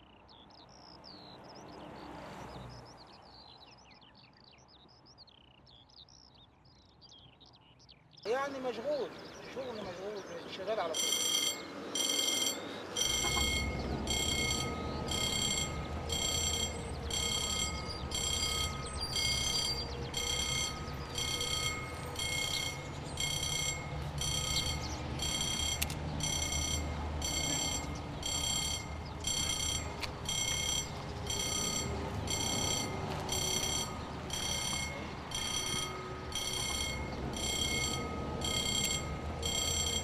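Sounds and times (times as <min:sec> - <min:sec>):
level crossing alarm ringing: 0:10.6 - 0:40.0.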